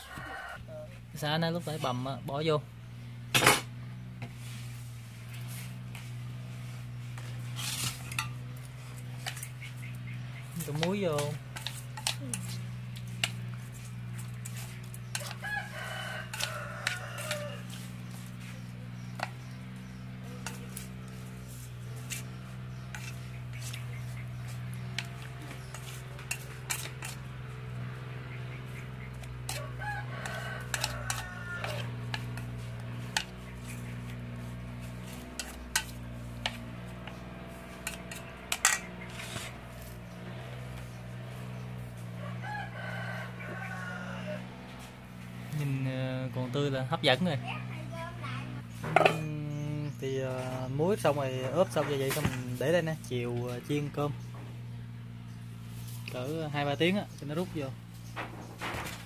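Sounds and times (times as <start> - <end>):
rooster crowing: 0.0 - 0.9, 15.0 - 18.1, 28.6 - 33.9, 41.9 - 45.2
steady low hum: 0.0 - 59.0
chopsticks tapping metal bowl: 19.1 - 19.5, 22.0 - 27.4, 30.2 - 34.2, 34.8 - 39.5.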